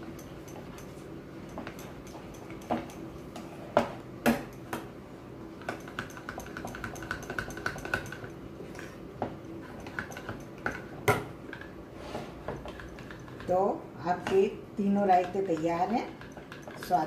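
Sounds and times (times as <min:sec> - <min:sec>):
spoon clinking on ceramic bowls: 0:00.0 - 0:03.2, 0:05.6 - 0:09.0.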